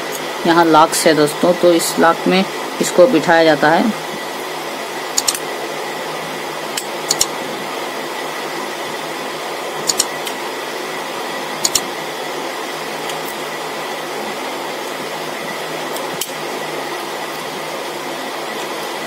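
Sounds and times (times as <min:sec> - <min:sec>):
fan-like hiss: 0:00.0 - 0:19.0.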